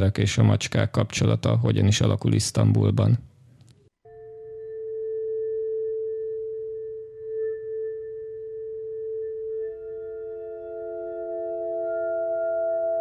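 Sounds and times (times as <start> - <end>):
lower and higher sustained notes: 4.1 - 13.0.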